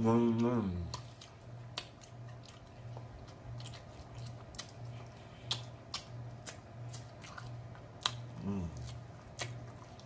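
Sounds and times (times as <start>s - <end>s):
faint low hum: 0.0s - 10.0s
wet lip and finger smacks: 3.7s - 8.3s.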